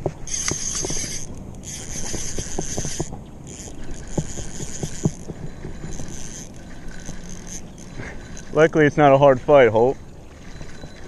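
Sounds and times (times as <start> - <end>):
fishing reel whirring: 0.2 - 11.0.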